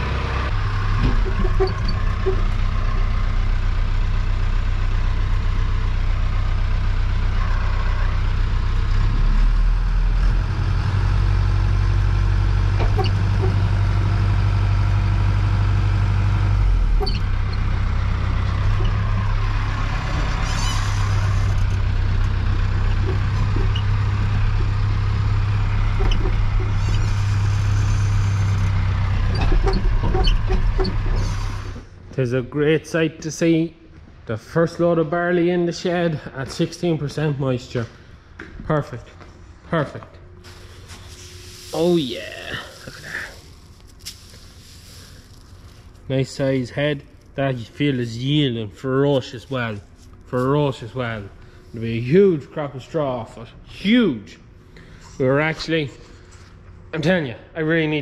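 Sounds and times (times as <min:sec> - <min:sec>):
tractor engine running: 0:00.0 - 0:32.1, 0:40.3 - 0:52.6
knocks and rattles: 0:00.9 - 0:02.6, 0:17.0 - 0:27.5, 0:29.2 - 0:31.3.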